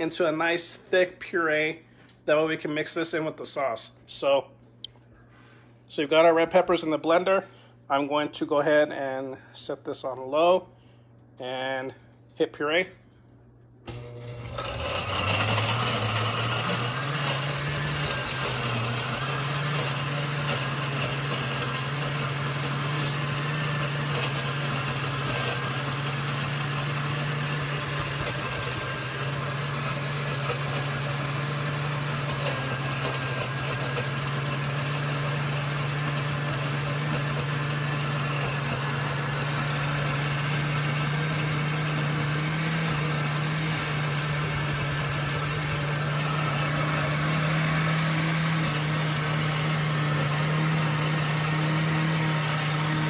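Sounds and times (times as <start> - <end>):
blender motor running: 13.9 - 53.0.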